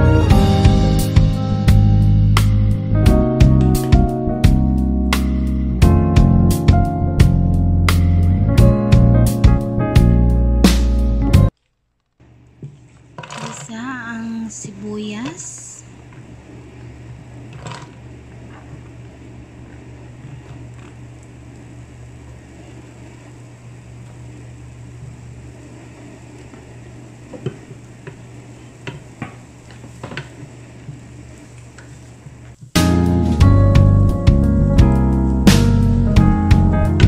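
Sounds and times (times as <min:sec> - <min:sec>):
steady low hum: 0:12.2 - 0:37.0.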